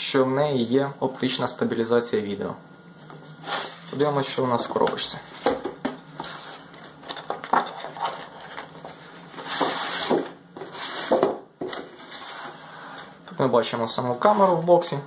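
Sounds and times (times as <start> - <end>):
packaging rustling and scraping: 3.2 - 4.0, 6.1 - 13.2
box sliding scrape: 3.3 - 4.0, 7.6 - 11.2, 12.0 - 13.2.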